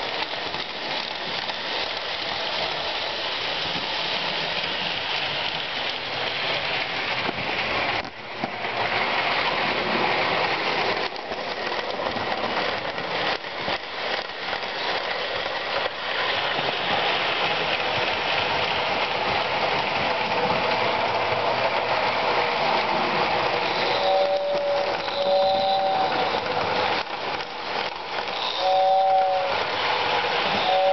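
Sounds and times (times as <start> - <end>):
toy train wheels clattering: 0.0 - 30.9
wheels clicking over rail joints: 0.0 - 30.9.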